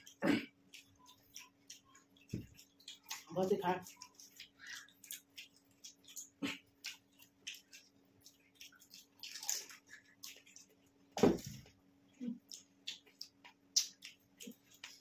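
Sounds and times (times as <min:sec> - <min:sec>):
wet slurps and splashes: 0:00.0 - 0:11.0.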